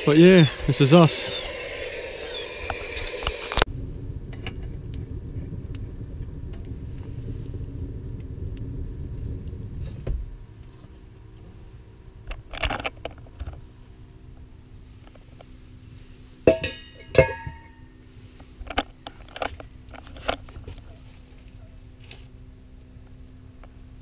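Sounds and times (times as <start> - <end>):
low rumble: 0.0 - 16.1
steady low hum: 0.0 - 24.0.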